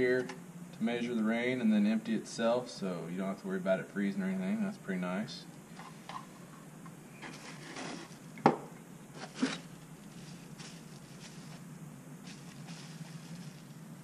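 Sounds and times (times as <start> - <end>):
steady low hum: 0.0 - 14.0
plastic bag crinkling: 9.2 - 14.0.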